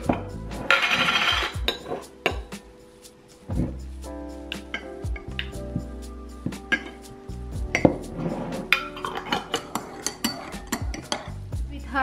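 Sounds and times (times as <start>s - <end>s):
soft background music: 0.0s - 12.0s
spoon clinking against cup: 8.8s - 11.4s.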